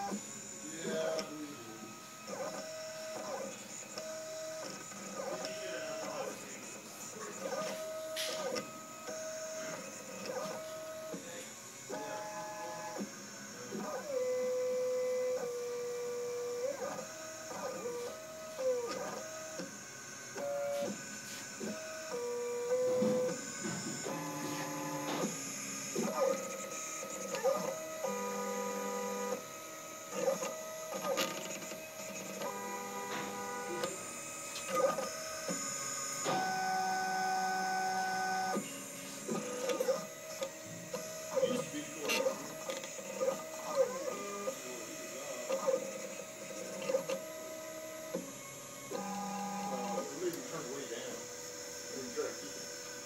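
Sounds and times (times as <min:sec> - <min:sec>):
stepper motors whining: 0:00.0 - 0:53.0
motor clicks: 0:11.9 - 0:51.4.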